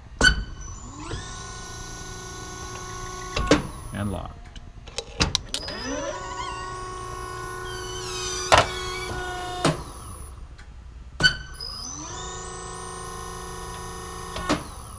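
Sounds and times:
pump motor whining: 0:00.6 - 0:03.9, 0:05.4 - 0:10.4, 0:11.2 - 0:14.9.

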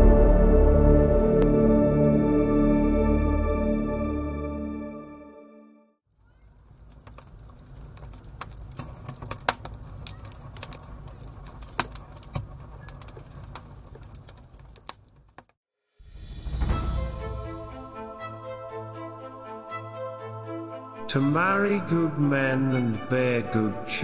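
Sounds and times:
rising swell into music: 0:00.0 - 0:05.6, 0:16.0 - 0:24.0
ambient music: 0:00.0 - 0:06.0, 0:16.0 - 0:24.0
record crackle pops and clicks: 0:06.2 - 0:15.6.

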